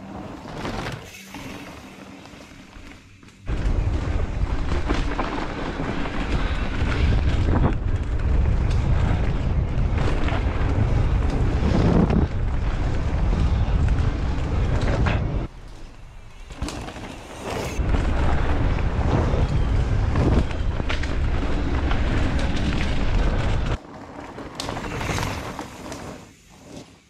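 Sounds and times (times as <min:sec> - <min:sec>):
bike tyres rumbling over dirt: 0:00.0 - 0:27.0
wind buffeting microphone: 0:03.5 - 0:15.5, 0:17.7 - 0:23.8.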